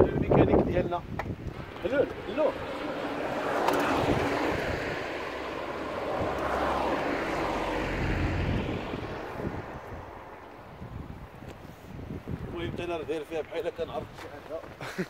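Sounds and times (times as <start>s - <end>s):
vehicle driving past: 1.5s - 11.2s.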